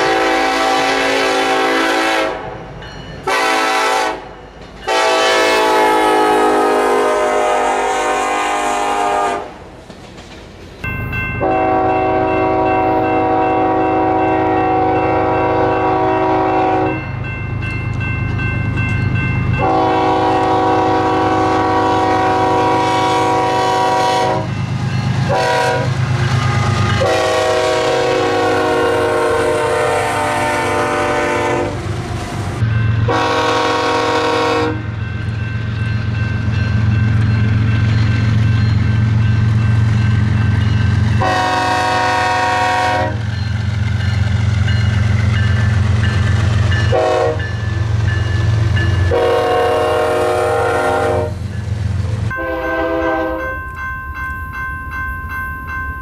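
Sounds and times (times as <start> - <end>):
locomotive air horn blasts: 0.0 - 2.6, 3.3 - 4.3, 4.9 - 9.6, 11.4 - 17.0, 19.6 - 24.5, 25.3 - 31.8, 33.1 - 34.9, 41.2 - 43.2, 46.9 - 47.5, 49.1 - 51.4, 52.3 - 53.6
diesel train rumbling: 0.0 - 56.0.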